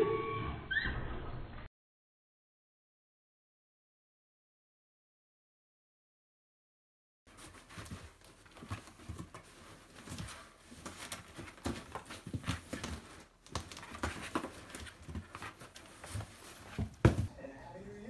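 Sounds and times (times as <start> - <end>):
cat scratching in cardboard box: 7.3 - 17.0.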